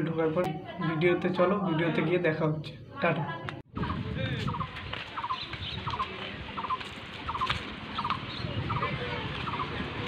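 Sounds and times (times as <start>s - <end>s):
wind and handling rumble: 3.4s - 10.0s
faint birds calling: 3.8s - 9.8s
bird chirping call: 4.5s - 9.8s.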